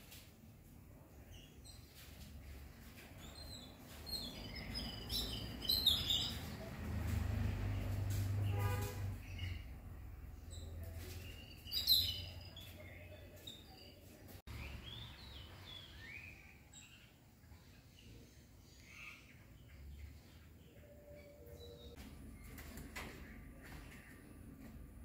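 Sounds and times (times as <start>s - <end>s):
birds chirping and calling: 3.0s - 6.8s, 10.4s - 24.4s.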